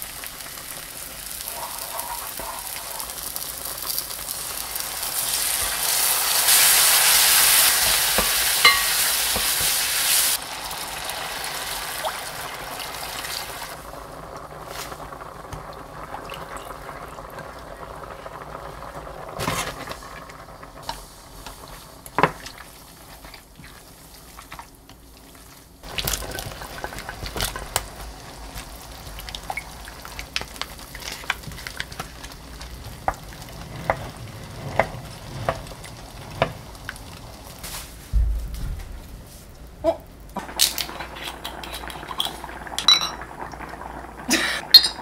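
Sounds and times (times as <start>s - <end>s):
wooden spoon stirring in pot: 19.4s - 27.8s.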